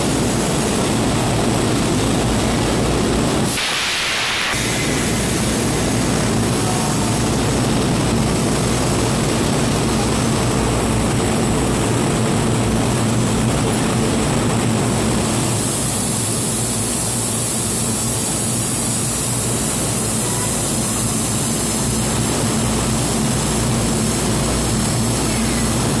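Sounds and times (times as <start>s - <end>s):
electric train droning hum: 0.0s - 26.0s
high hiss: 3.4s - 7.9s.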